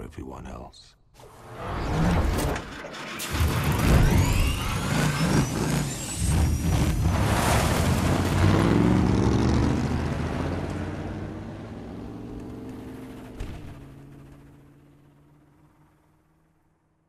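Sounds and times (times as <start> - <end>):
supercharged car engine revving: 3.3 - 15.8.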